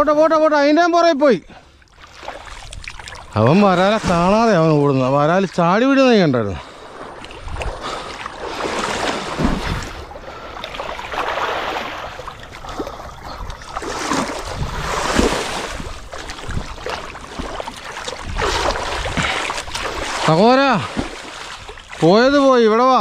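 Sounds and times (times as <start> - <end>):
water sloshing and splashing: 1.6 - 23.0
wind buffeting microphone: 6.8 - 22.5.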